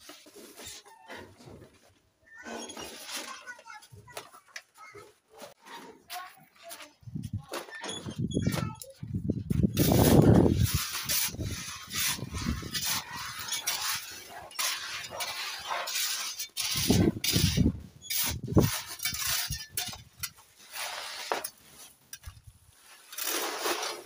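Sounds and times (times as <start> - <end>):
gravel clattering on trowel: 9.8 - 24.0.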